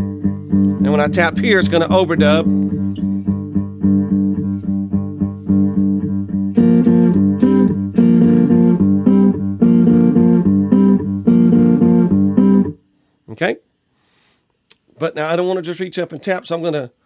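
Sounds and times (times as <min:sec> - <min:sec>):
picked guitar figure: 0:00.0 - 0:12.8
fuller guitar part: 0:00.0 - 0:12.9.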